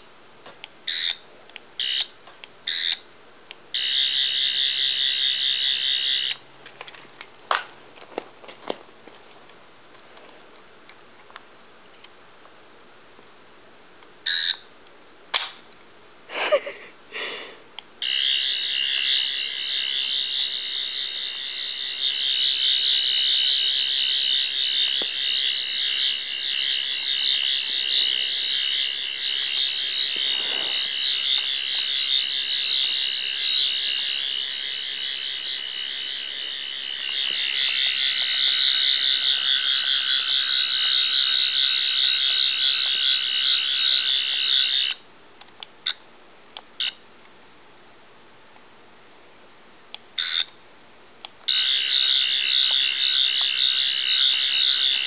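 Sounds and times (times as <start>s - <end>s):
toy electronic chirps and warble: 0.9s - 1.2s, 2.7s - 3.0s, 14.3s - 14.6s, 50.2s - 50.5s.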